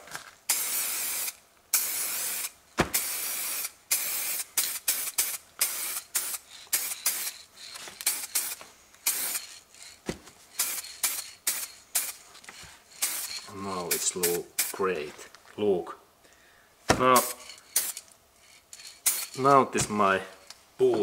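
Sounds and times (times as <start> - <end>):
spray paint can hissing: 0.5 - 14.8, 17.2 - 19.4.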